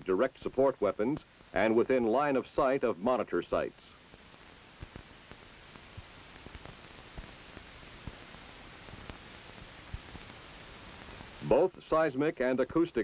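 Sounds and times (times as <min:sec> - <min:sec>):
film soundtrack hiss: 0:00.0 - 0:13.0
faint clicks and pops: 0:03.9 - 0:11.4.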